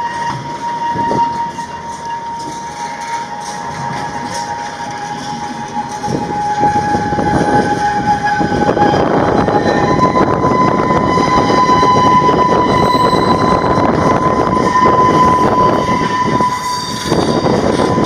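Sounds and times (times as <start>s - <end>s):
wheels clattering over rails: 0.0s - 9.9s
high-pitched wheel squeal: 0.0s - 18.0s.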